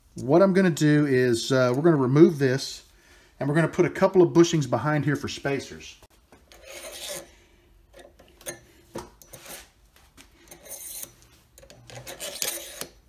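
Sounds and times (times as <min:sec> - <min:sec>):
metal parts scraping on rod: 0:06.4 - 0:07.3, 0:10.5 - 0:13.0.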